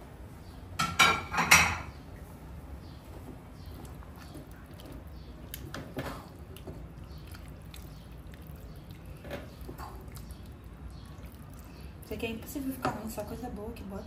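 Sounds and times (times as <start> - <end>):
steady low hum: 0.0 - 14.0
spoon stirring thick sauce: 3.6 - 12.0.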